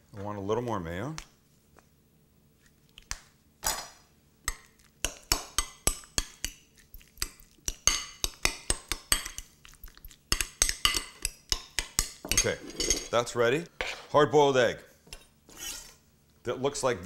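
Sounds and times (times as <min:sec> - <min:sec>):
fork scraping in a bowl: 0:15.5 - 0:16.0.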